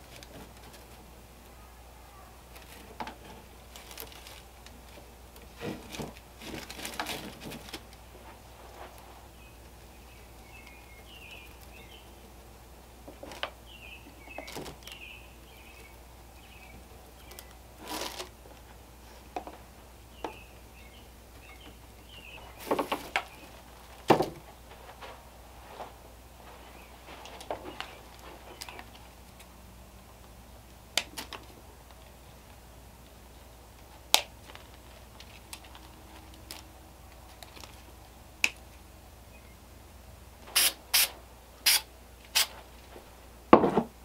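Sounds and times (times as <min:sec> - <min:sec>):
rustling twine: 0:00.0 - 0:19.7, 0:21.3 - 0:29.6, 0:33.7 - 0:38.8.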